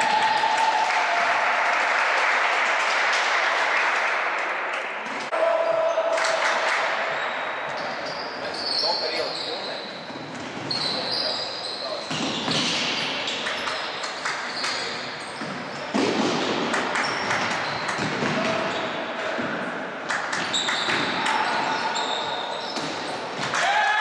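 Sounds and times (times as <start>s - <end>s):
shoes squeaking on floor: 7.2s - 15.9s, 17.0s - 19.0s, 20.3s - 23.4s.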